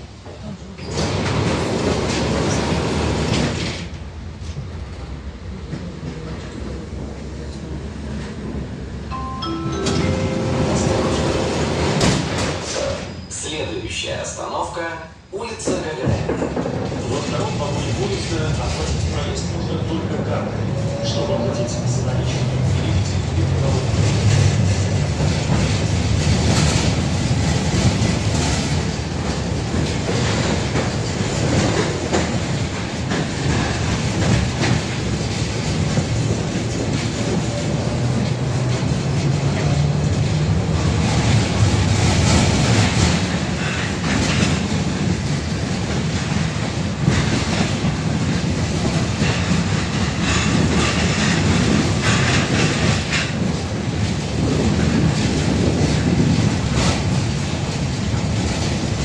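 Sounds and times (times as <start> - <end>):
steel wheels rumbling on rail: 0.0 - 59.0
wheels clicking over rail joints: 24.1 - 59.0.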